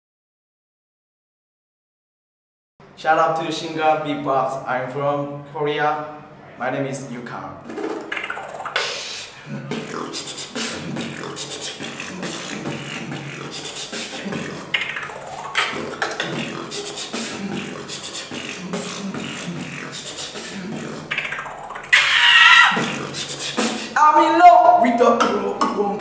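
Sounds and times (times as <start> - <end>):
person beatboxing: 7.6 - 26.0.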